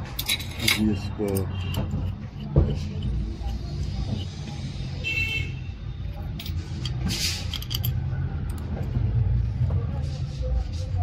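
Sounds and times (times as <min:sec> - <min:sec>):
small metal parts clinking: 0:00.0 - 0:03.6, 0:06.1 - 0:09.0.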